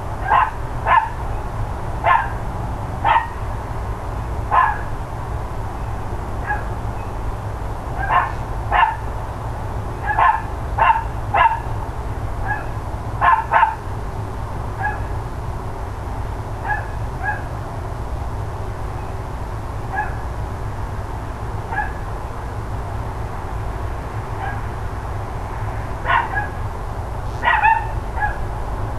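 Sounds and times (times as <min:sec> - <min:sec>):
steady low rumble: 0:00.0 - 0:28.9
dogs barking: 0:00.2 - 0:01.3, 0:02.0 - 0:02.4, 0:03.0 - 0:03.4, 0:04.5 - 0:05.0, 0:06.4 - 0:06.8, 0:08.0 - 0:09.1, 0:10.0 - 0:11.8, 0:12.4 - 0:13.9, 0:14.8 - 0:15.2, 0:16.6 - 0:17.6, 0:19.9 - 0:20.3, 0:21.7 - 0:22.1, 0:24.4 - 0:24.7, 0:26.0 - 0:26.6, 0:27.4 - 0:28.5.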